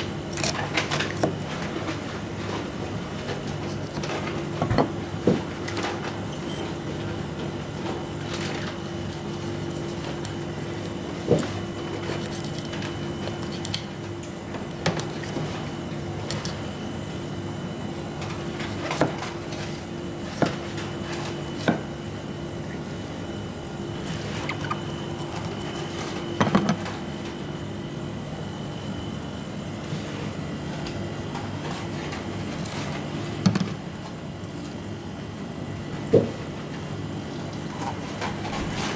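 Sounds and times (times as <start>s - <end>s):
steady machine hum: 0.0s - 38.6s.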